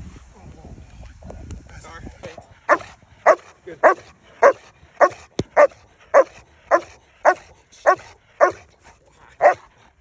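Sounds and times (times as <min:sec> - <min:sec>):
dog barking: 0:02.7 - 0:08.6, 0:09.4 - 0:09.7.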